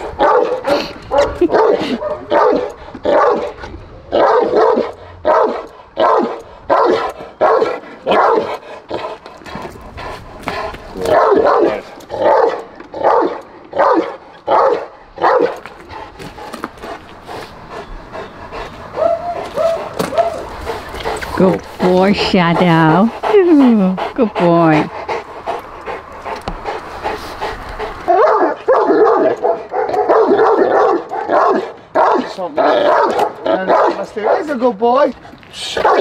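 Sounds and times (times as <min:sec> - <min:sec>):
dog barking: 0:00.2 - 0:03.6, 0:04.2 - 0:08.6, 0:11.0 - 0:15.6, 0:19.0 - 0:20.5, 0:28.1 - 0:34.6, 0:35.8 - 0:36.0.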